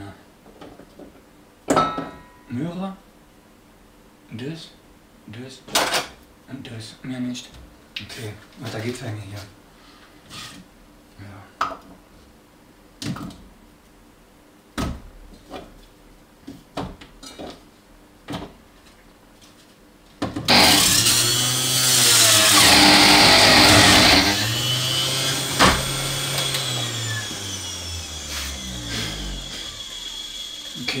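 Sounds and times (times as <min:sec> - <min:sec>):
blender motor whirring: 0:20.5 - 0:31.0.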